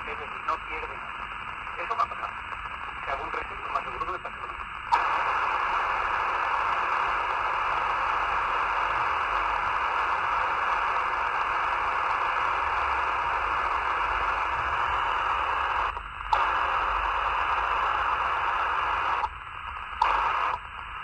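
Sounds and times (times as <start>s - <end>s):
radio squelch click: 0.0s - 20.9s
radio static hiss: 0.0s - 21.0s.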